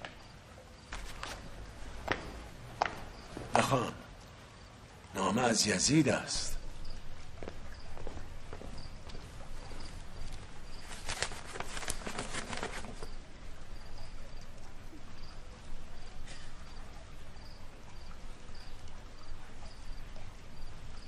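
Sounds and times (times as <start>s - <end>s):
crickets chirping: 0.0s - 21.0s
crisp rustles and clicks: 0.9s - 2.3s, 7.5s - 13.3s.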